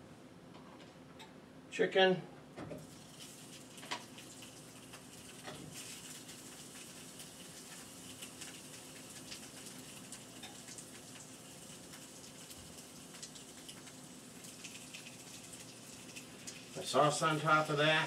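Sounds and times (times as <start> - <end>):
crackles and pops: 2.8 - 16.8
chicken sizzling in a pan: 2.8 - 18.0.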